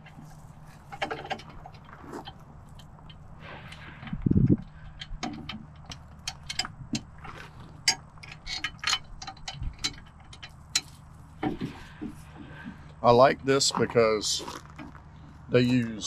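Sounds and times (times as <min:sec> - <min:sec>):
metal bolts clicking and clinking: 0:00.9 - 0:11.7.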